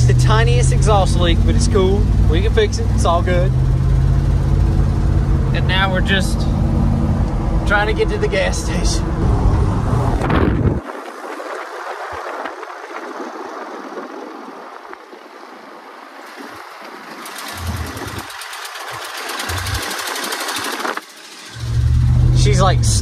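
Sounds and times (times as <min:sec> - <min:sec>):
pickup truck engine and road noise: 0:00.0 - 0:23.0
fast even ticking: 0:17.3 - 0:21.6.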